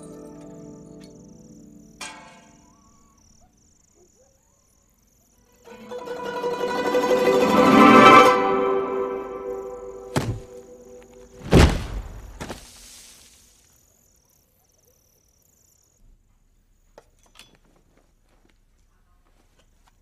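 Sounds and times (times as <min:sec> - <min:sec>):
body thudding on stone floor: 0:10.1 - 0:10.5, 0:11.2 - 0:13.2
hiss: 0:12.5 - 0:13.8.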